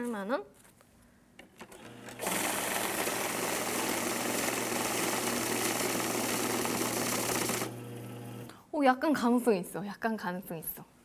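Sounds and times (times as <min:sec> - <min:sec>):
whirr of banknotes feeding: 0:01.7 - 0:08.5
motor hum: 0:05.7 - 0:08.5.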